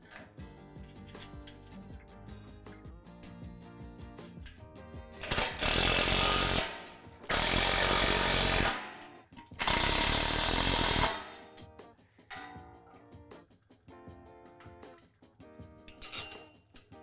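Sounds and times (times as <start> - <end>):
impact driver hammering bolts: 5.2 - 11.6.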